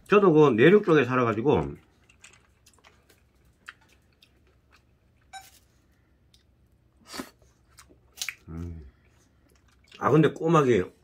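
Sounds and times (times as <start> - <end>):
chewing: 1.8 - 5.4, 7.4 - 10.4.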